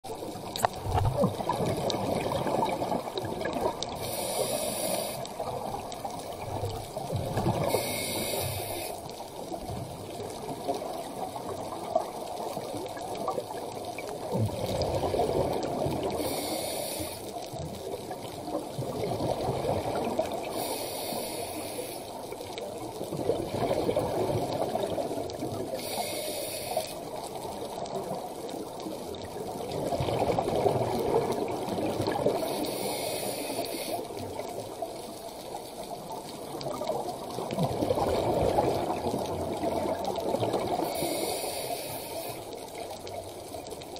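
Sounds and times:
exhaled bubbles rushing: 0.6 - 4.0, 5.4 - 7.9, 18.0 - 20.5, 23.1 - 25.7, 29.5 - 32.4, 36.5 - 40.8
regulator breathing hiss: 3.9 - 5.5, 7.6 - 9.2, 16.1 - 17.4, 20.5 - 22.3, 25.8 - 27.0, 32.4 - 34.1, 40.8 - 42.6.

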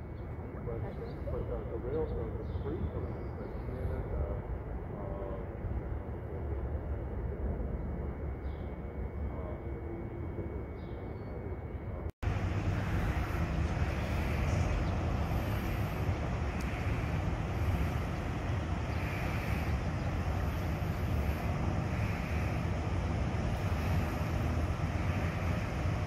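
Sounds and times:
street traffic rumble: 0.0 - 26.0
bus approaching: 12.2 - 26.0
wind buffeting microphone: 12.2 - 26.0.

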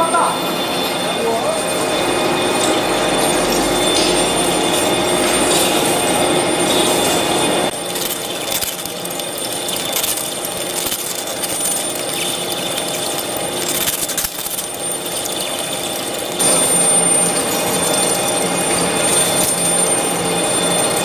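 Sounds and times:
crackle of metal chips breaking: 6.7 - 19.9.

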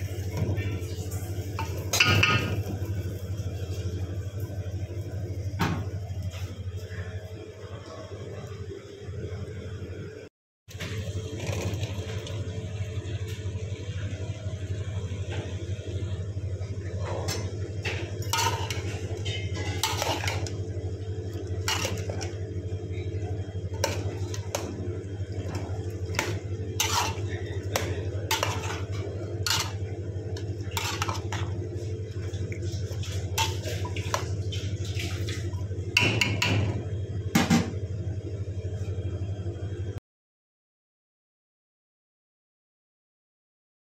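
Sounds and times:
steady low hum: 0.0 - 40.0
metal spoon stirring in a pot: 18.2 - 20.6, 21.6 - 22.4, 25.4 - 34.3.

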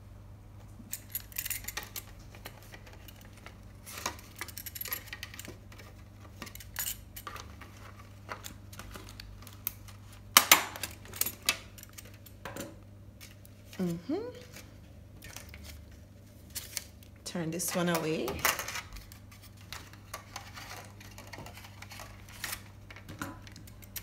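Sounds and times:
paper plate rustling: 17.6 - 23.8.

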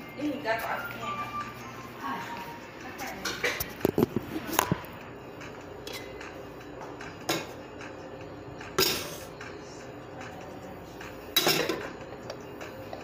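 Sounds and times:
steady low hum: 0.0 - 13.0
kitchenware clicks: 11.4 - 11.9
metal pot clanging: 11.4 - 11.9.

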